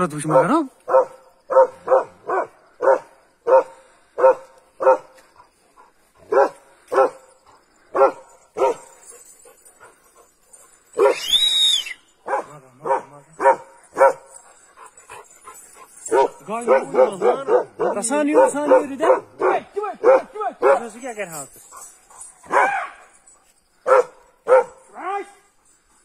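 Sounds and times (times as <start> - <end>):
dog barking: 0.2 - 5.2, 6.2 - 7.3, 7.9 - 9.0, 11.0 - 11.2, 12.2 - 14.3, 16.1 - 21.0, 22.4 - 23.1, 23.8 - 24.9
dog high-pitched cry: 22.4 - 23.2.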